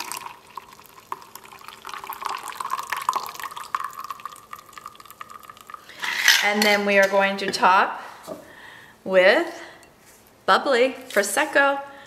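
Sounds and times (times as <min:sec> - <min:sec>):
liquid pouring into a glass: 0:00.0 - 0:06.4.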